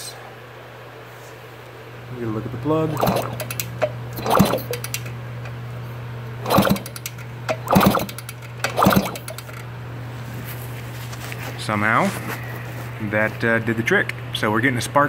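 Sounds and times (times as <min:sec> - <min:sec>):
steady low hum: 0:00.0 - 0:15.0
motorcycle engine kickstart clatter: 0:03.0 - 0:05.1, 0:06.4 - 0:09.6.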